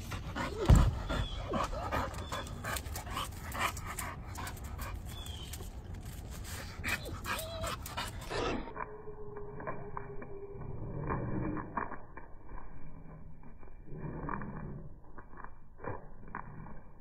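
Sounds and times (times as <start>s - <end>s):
dog panting: 0.0s - 5.4s
dog whimpering: 6.9s - 8.7s.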